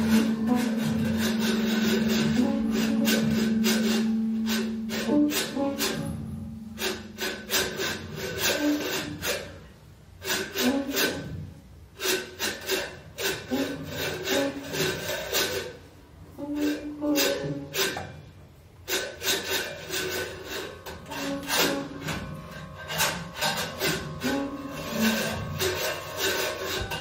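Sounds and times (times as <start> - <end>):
free improvisation band: 0.0 - 27.0
noisy clicking strokes: 0.0 - 27.0.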